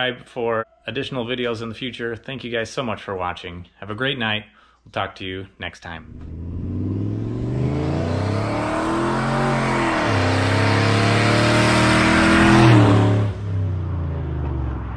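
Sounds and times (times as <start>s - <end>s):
truck engine accelerating: 6.0s - 14.9s.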